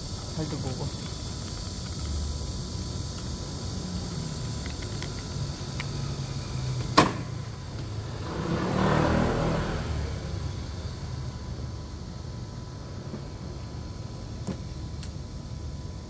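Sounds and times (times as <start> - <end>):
steady low rumble: 0.0 - 6.6.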